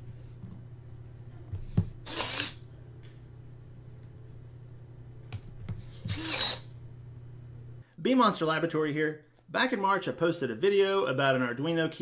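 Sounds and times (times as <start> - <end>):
steady low hum: 0.0 - 9.5
servo motor whirring: 2.0 - 2.6, 6.0 - 6.7.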